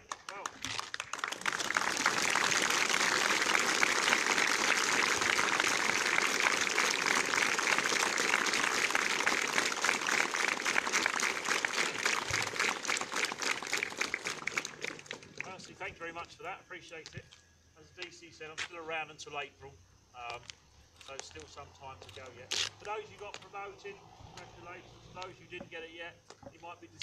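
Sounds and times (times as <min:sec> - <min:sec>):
crowd applauding: 0:00.0 - 0:15.7.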